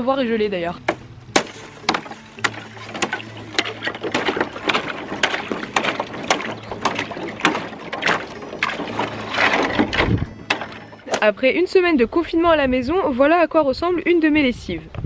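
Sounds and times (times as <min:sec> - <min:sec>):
water sloshing: 0:00.2 - 0:11.8.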